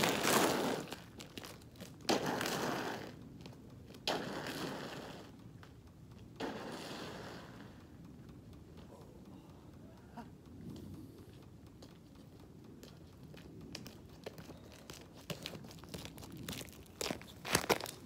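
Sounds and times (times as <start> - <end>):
boots scraping on ice: 0.0 - 5.3, 13.8 - 18.0.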